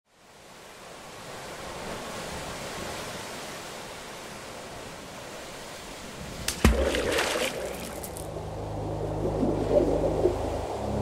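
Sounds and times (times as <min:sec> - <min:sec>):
car road and wind noise: 0:08.0 - 0:11.0.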